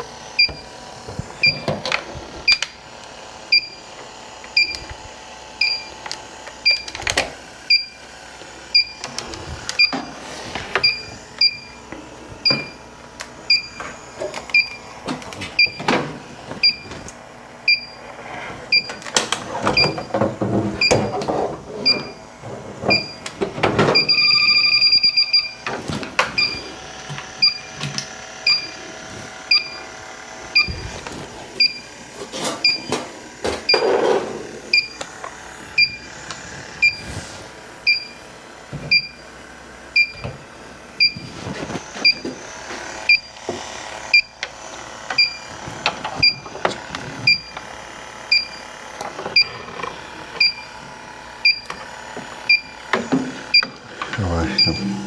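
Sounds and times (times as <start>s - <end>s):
high two-tone electronic beep: 24.0s - 25.6s, 54.6s - 55.0s.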